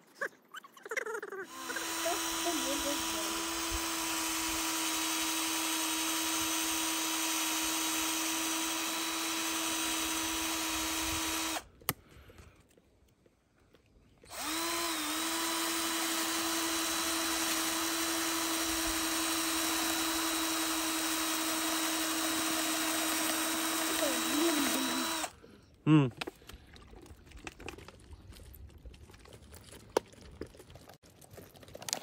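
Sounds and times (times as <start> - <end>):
small motor whining: 1.4 - 11.7, 14.3 - 25.4.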